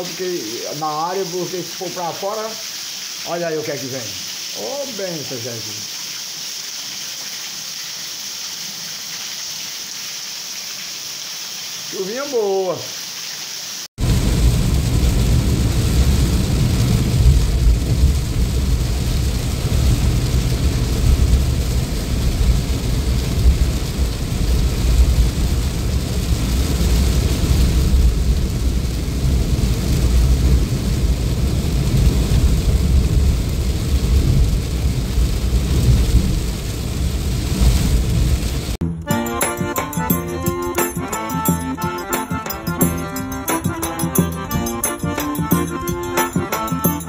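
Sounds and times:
heavy rain drumming on car roof: 0:00.0 - 0:05.8, 0:14.0 - 0:38.8.

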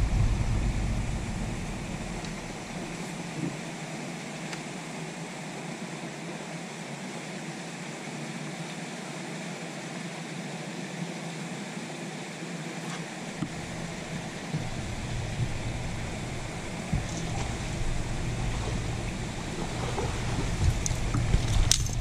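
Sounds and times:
wind buffeting microphone: 0:00.0 - 0:03.6, 0:13.4 - 0:22.0
water noise: 0:00.0 - 0:22.0.

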